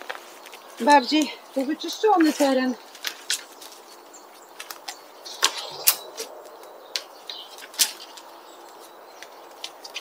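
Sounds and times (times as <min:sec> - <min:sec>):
dry twigs snapping: 0:02.9 - 0:03.8, 0:04.6 - 0:10.0.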